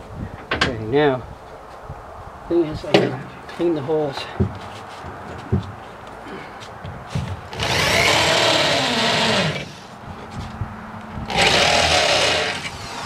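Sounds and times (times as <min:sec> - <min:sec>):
power drill drilling metal: 0:07.5 - 0:09.8, 0:11.3 - 0:13.0.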